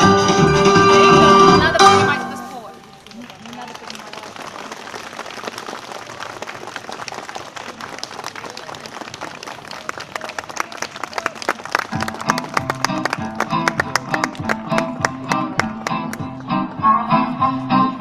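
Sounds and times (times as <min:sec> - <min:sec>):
music with plucked notes and bass: 0:00.0 - 0:02.6, 0:12.0 - 0:18.0
crowd applauding: 0:02.6 - 0:16.5.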